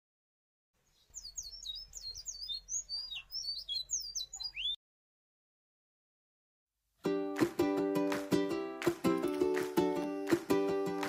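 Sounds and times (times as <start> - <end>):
small birds chirping: 0.8 - 4.8.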